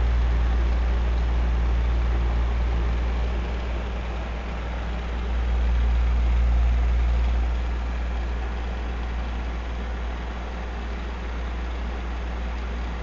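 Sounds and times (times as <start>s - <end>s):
electric fan running: 0.0s - 13.0s.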